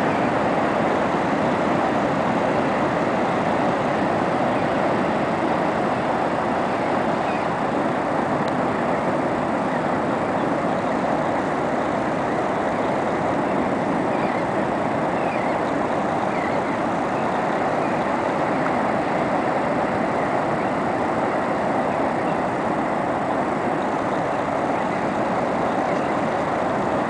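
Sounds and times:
ocean waves breaking on beach: 0.0s - 27.0s.

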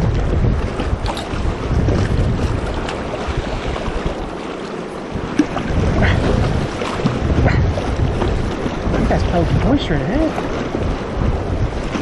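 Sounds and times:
paddle splashes: 0.0s - 12.0s
river water splashing against board: 0.0s - 12.0s
wind rumbling on microphone: 0.0s - 12.0s.

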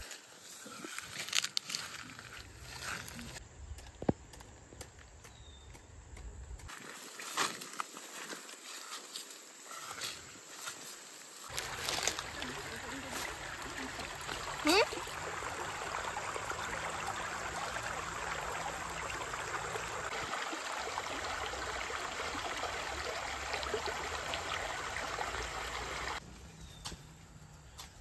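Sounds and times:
stream rushing over stones: 11.5s - 26.2s.

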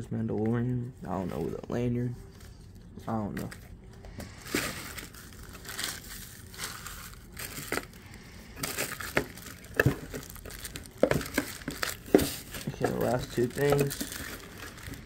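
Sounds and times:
hands rustling shredded paper: 4.2s - 15.0s.

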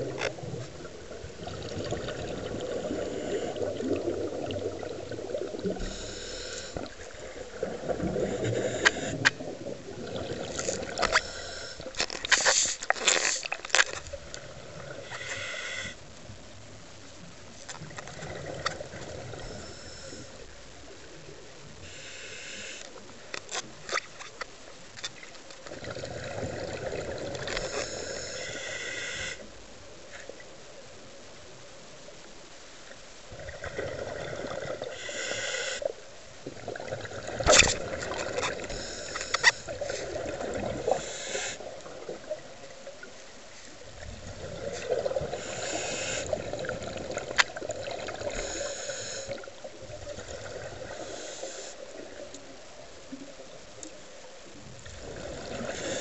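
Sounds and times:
exhaled bubbles rumbling: 0.0s - 12.3s, 13.5s - 15.2s, 16.1s - 21.8s, 25.6s - 28.2s, 33.3s - 35.0s, 36.0s - 43.2s, 43.8s - 48.7s, 49.3s - 51.1s, 54.6s - 56.0s
scuba regulator hissing inhales: 2.7s - 3.8s, 5.7s - 7.0s, 8.2s - 9.3s, 11.0s - 13.4s, 15.0s - 16.0s, 19.4s - 20.4s, 21.8s - 22.9s, 27.6s - 29.5s, 34.8s - 35.9s, 38.6s - 40.2s, 40.8s - 41.7s, 45.3s - 46.5s, 48.2s - 49.5s, 50.8s - 51.9s, 55.5s - 56.0s.

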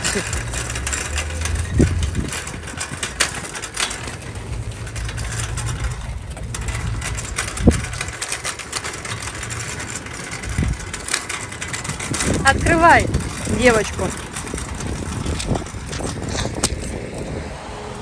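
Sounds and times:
metal basket rattling: 0.0s - 17.1s
cart wheels rumbling on asphalt: 0.0s - 18.0s.

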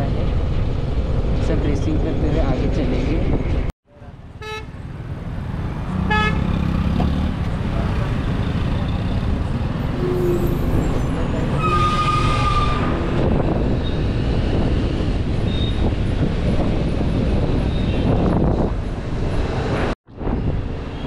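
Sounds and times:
road traffic rumble: 0.0s - 21.0s
long vehicle horn: 4.4s - 4.8s, 6.0s - 6.6s, 10.0s - 10.8s.

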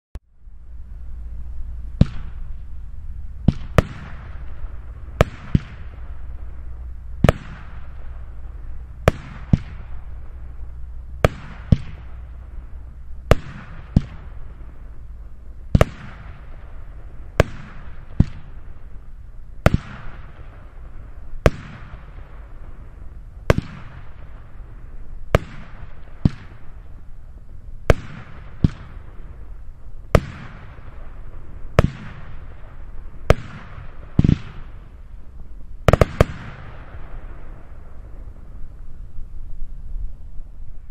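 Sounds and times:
firework stars hissing: 0.5s - 40.9s
firework bangs: 1.5s - 39.1s.

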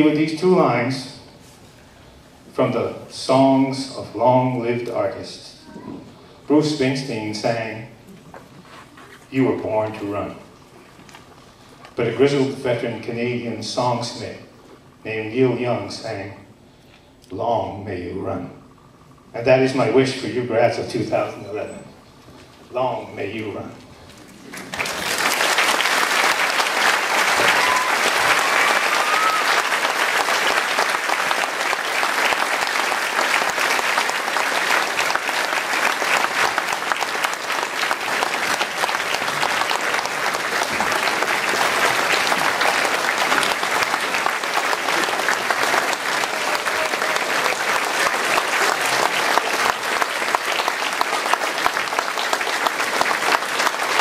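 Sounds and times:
crowd applauding: 24.5s - 54.0s.

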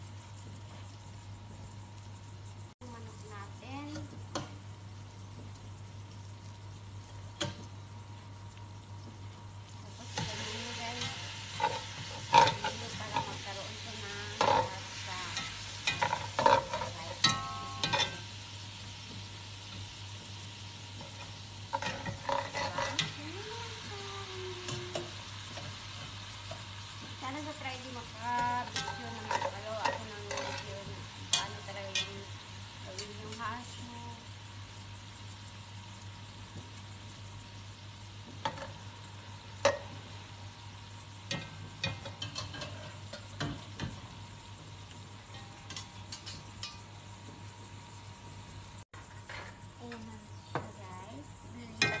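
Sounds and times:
chicken sizzling in oil: 0.0s - 52.0s
steady low hum: 0.0s - 52.0s
spatula scraping a pot: 21.0s - 23.2s, 28.6s - 32.1s.

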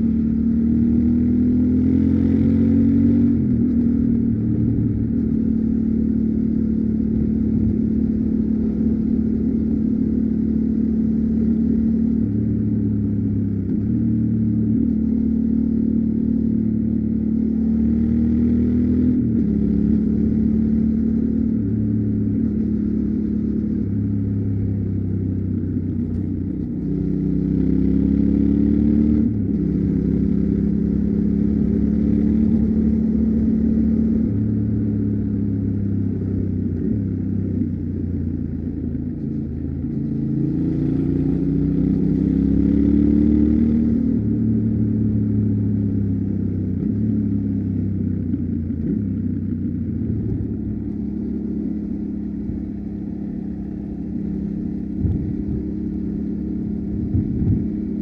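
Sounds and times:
motorcycle engine under way: 0.0s - 58.0s.

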